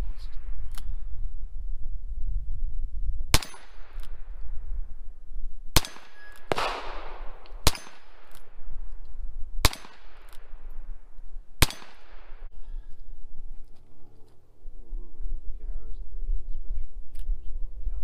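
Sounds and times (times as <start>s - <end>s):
revolver shots with echo: 5.8s - 8.5s, 9.6s - 10.6s, 11.6s - 12.5s.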